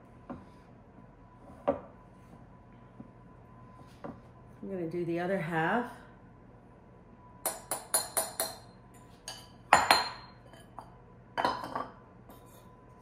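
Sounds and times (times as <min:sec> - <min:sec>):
glass bowls clinking: 0:07.5 - 0:12.5.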